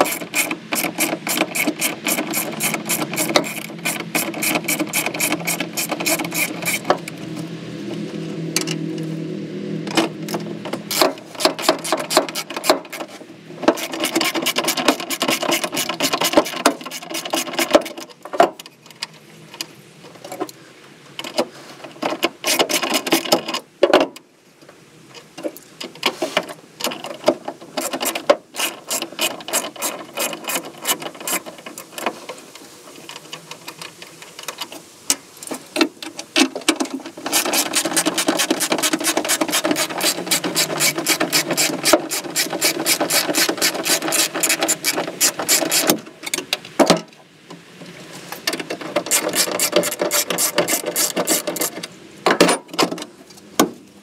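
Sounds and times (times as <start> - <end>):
socket ratchet clicking: 0.0 - 6.9.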